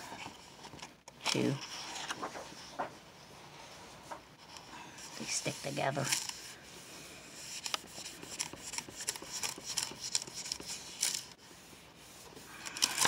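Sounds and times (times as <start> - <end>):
hand rubbing paper: 1.4 - 13.0
paper crackles and ticks: 4.5 - 6.5, 7.5 - 11.4, 12.6 - 13.0.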